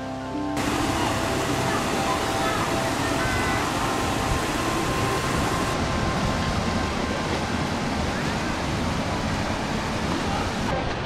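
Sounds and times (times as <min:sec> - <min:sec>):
stream water rushing over rocks: 0:00.6 - 0:10.8.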